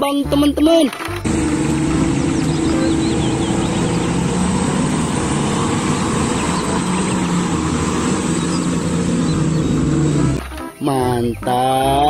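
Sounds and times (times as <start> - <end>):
dump truck diesel engines running: 1.1 - 10.4.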